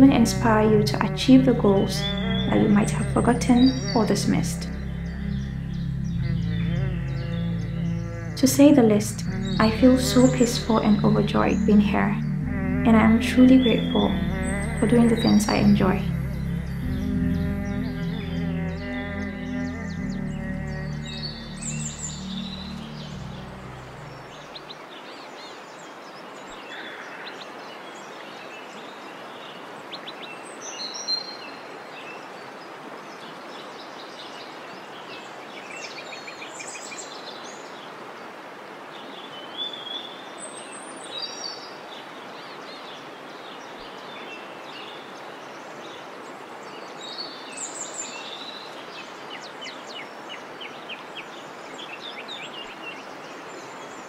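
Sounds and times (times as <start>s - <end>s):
background music: 0.0s - 24.7s
songbirds chirping and trilling: 0.0s - 54.0s
steady outdoor hiss: 0.0s - 54.0s.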